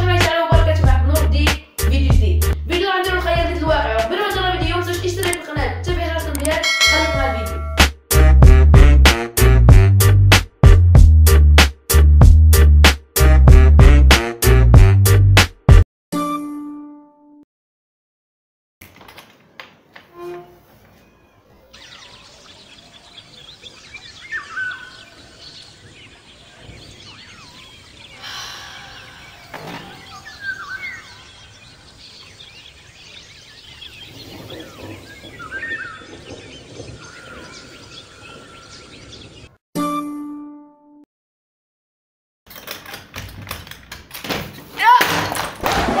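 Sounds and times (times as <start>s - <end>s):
birds chirping and singing: 20.9s - 39.6s
rising-and-falling bird call: 21.7s - 39.4s
wooden windows knocking and clicking: 42.5s - 46.0s.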